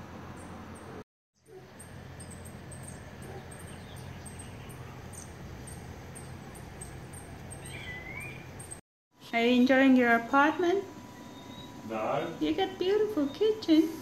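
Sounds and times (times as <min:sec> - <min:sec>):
whistled bird call: 0:07.6 - 0:08.5.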